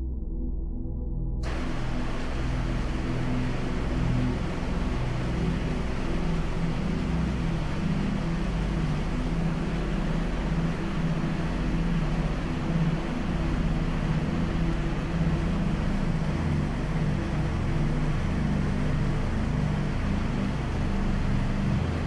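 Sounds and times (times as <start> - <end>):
even hiss: 1.4 - 12.6
low engine rumble: 1.4 - 22.0.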